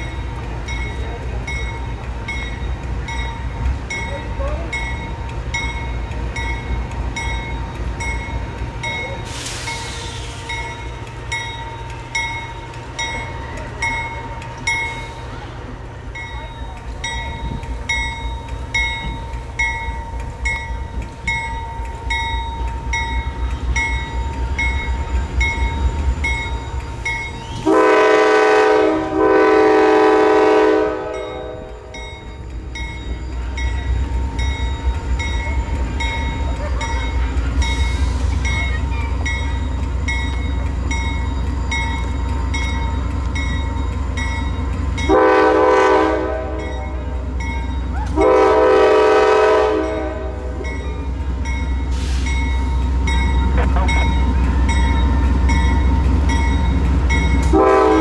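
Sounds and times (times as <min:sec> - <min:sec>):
locomotive air horn blasts: 0:27.6 - 0:31.9, 0:45.1 - 0:46.9, 0:48.1 - 0:50.6, 0:57.5 - 0:58.0.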